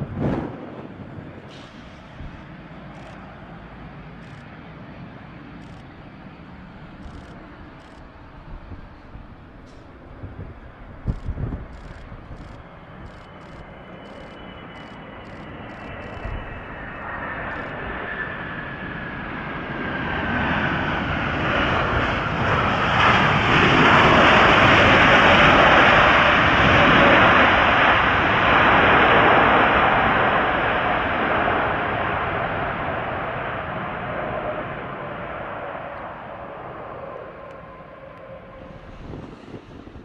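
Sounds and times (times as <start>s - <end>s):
jet engines reverse thrust: 0.0s - 40.0s.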